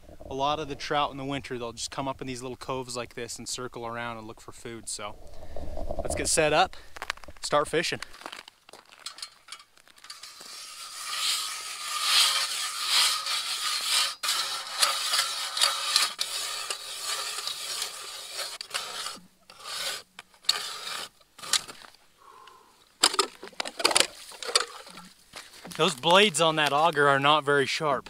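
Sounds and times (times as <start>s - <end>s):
ice auger blades scraping ice: 5.4s - 22.0s, 23.0s - 27.4s.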